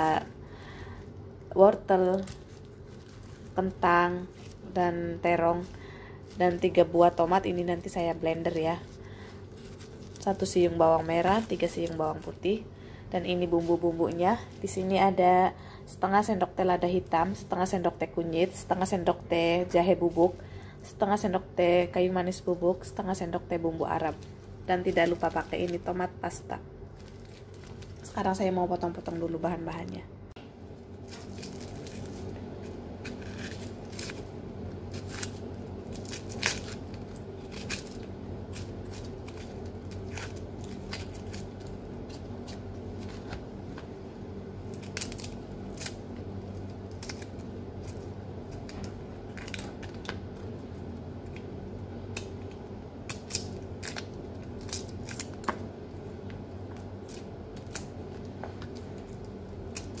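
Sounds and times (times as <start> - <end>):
steady low hum: 0.0 - 60.0
knife scraping onion skins: 31.0 - 43.4.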